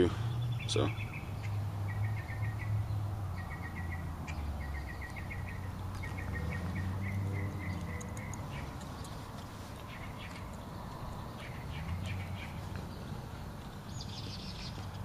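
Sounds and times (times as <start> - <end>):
quick chirp trills: 6.1 - 10.6.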